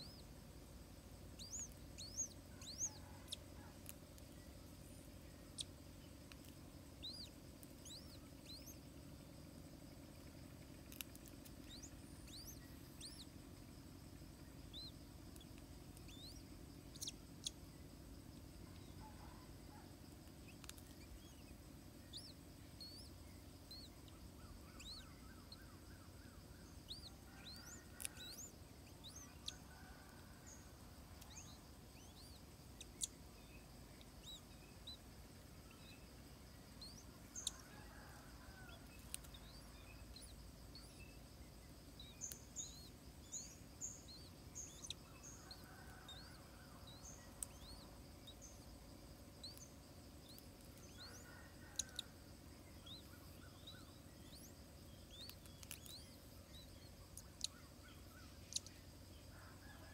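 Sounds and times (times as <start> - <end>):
faint low hum: 0.0 - 59.9
small birds chirping: 0.0 - 59.9
soft ticks: 38.8 - 39.6, 47.4 - 47.8, 55.1 - 56.0, 57.1 - 57.6, 58.4 - 58.8.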